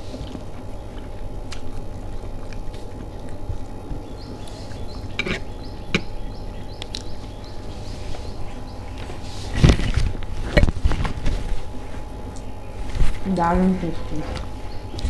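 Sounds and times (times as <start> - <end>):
person chewing food: 0.0 - 12.9.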